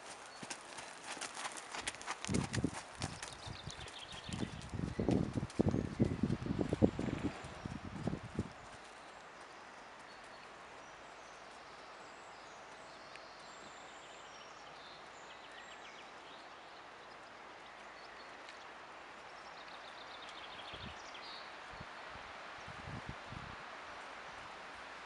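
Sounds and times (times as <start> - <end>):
small birds chirping: 0.0 - 22.0
outdoor background hiss: 6.2 - 25.0.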